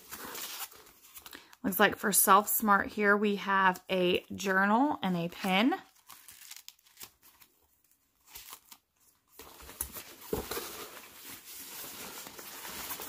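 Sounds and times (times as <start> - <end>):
hands rustling packing in box: 8.2 - 13.0.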